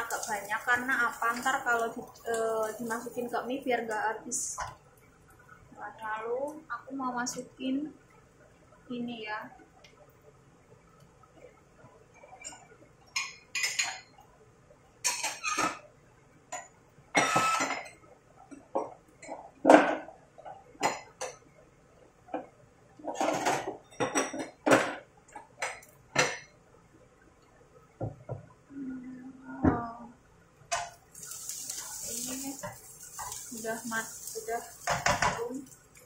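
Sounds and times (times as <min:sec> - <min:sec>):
dishes and utensils clattering: 0:12.2 - 0:14.2, 0:15.0 - 0:15.9, 0:16.6 - 0:18.0, 0:22.3 - 0:26.5.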